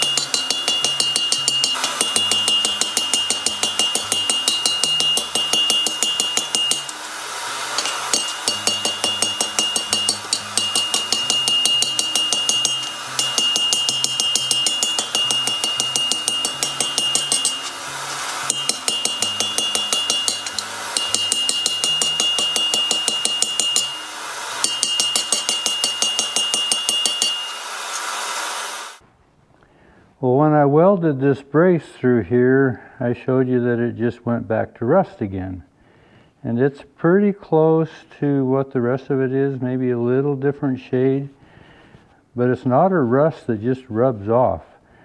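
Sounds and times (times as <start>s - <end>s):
hammer striking iron on anvil: 0.0s - 7.0s, 7.8s - 24.0s, 24.6s - 27.6s.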